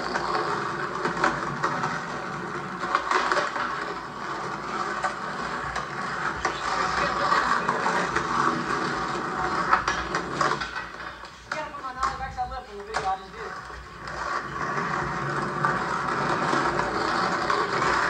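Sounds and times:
skateboard clacks: 0.0s - 18.0s
skateboard wheels rolling on pavement: 0.0s - 18.0s
faint voices: 6.2s - 9.1s.

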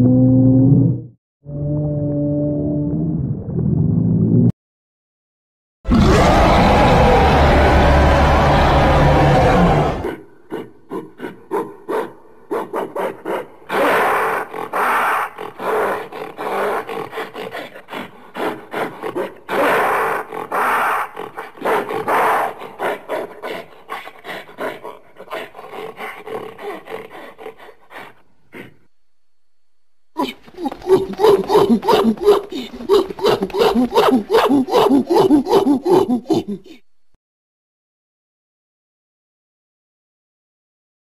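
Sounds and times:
gorilla grunting: 9.6s - 28.9s, 30.2s - 36.8s
gorilla rasping calls: 10.0s - 28.8s, 30.2s - 36.8s.

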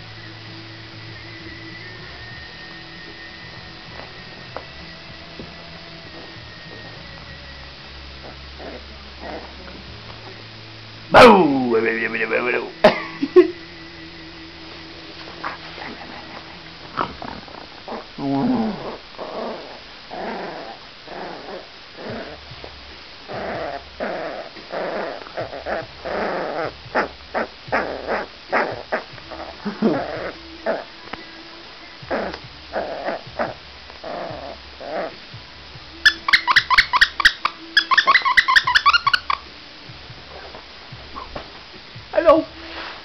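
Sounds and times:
puppy growling: 8.2s - 9.8s, 15.2s - 22.5s, 23.3s - 30.9s, 32.1s - 35.2s
sharp high squeaks: 36.0s - 39.5s.

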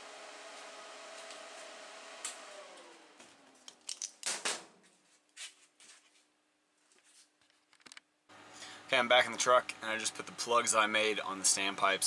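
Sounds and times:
small motor humming: 0.0s - 3.6s.

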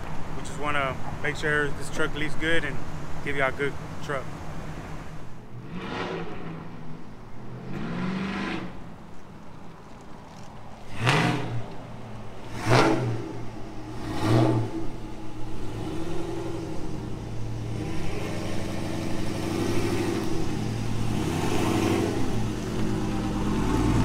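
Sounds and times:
truck engine revving: 3.3s - 9.0s, 10.8s - 24.0s
truck driving past: 10.8s - 24.0s.

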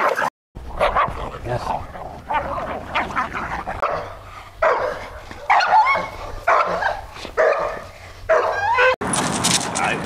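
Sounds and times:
dog barking: 0.8s - 1.2s, 3.8s - 8.9s.

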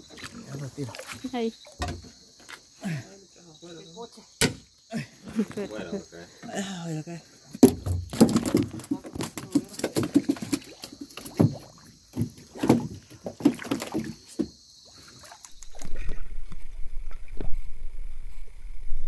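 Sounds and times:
water splashing against boat: 0.0s - 2.1s, 8.0s - 17.7s.

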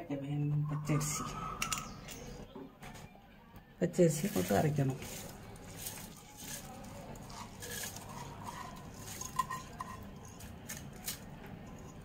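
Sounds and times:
soft wet scraping: 4.1s - 12.0s.

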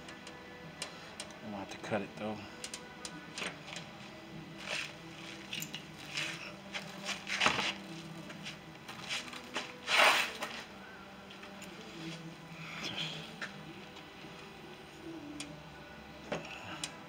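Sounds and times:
faint steady hum: 0.0s - 17.0s
tools and parts clicking and knocking: 4.6s - 6.4s.

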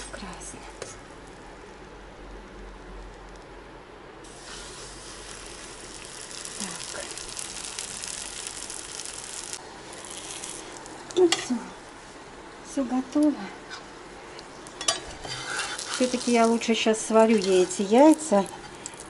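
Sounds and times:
dough sizzling in hot oil: 4.2s - 11.6s, 14.8s - 19.0s.

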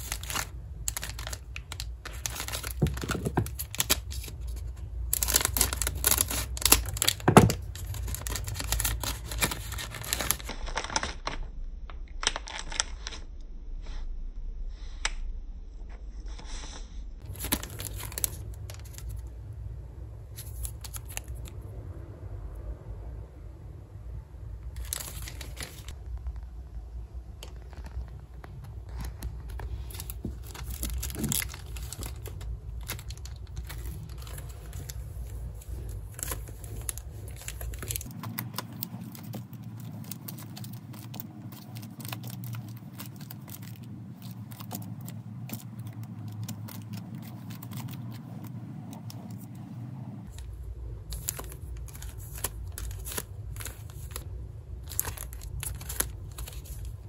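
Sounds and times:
plastic packaging crinkling: 0.0s - 11.5s, 12.2s - 13.2s, 17.2s - 19.3s, 20.4s - 21.6s, 24.7s - 26.0s, 27.3s - 49.5s, 50.2s - 57.0s.

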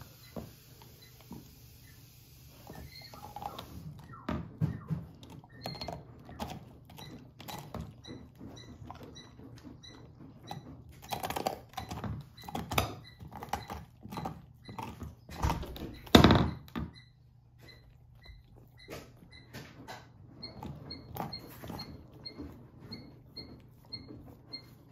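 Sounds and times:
puppy gnawing a bone: 0.0s - 24.9s.

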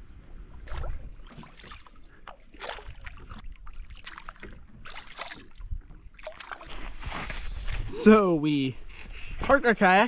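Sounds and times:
paddles splashing in water: 0.5s - 7.3s.

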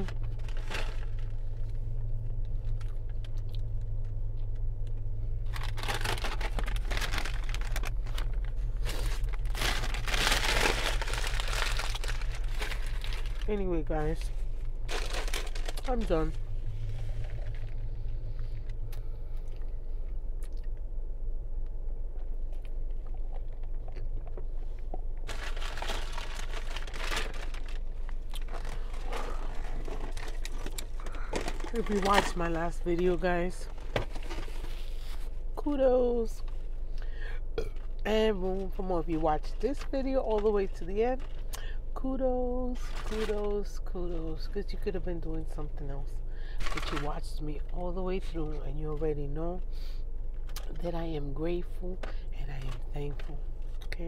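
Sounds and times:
food packaging crumpling: 0.0s - 1.6s, 5.4s - 13.6s, 14.8s - 16.2s, 25.2s - 32.5s, 42.8s - 43.4s, 46.6s - 47.1s
steady low hum: 0.0s - 54.0s.

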